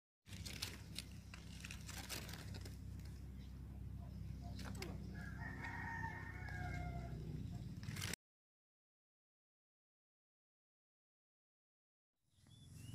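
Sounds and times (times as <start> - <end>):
low rumble: 0.3 - 8.2
rooster crowing: 4.8 - 7.6.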